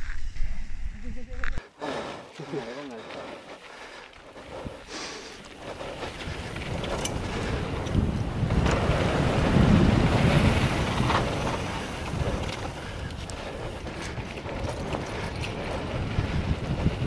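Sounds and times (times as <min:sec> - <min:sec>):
low rumble: 0:00.0 - 0:01.6
wind buffeting microphone: 0:03.8 - 0:17.0.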